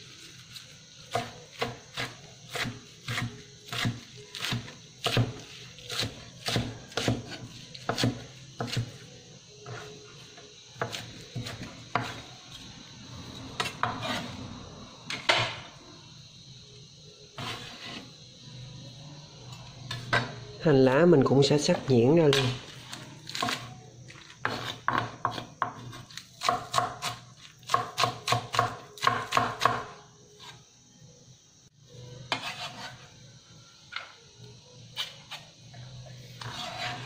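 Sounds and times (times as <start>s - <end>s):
knife chopping on wooden board: 1.1s - 8.9s, 24.4s - 29.9s.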